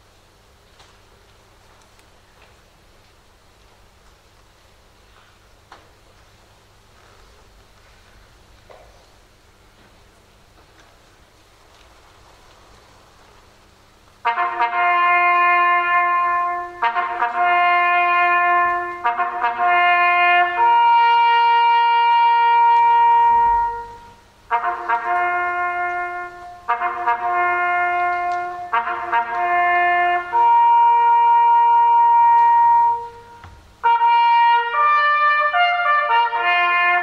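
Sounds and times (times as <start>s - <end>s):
solo trumpet bugle call: 14.2s - 37.0s.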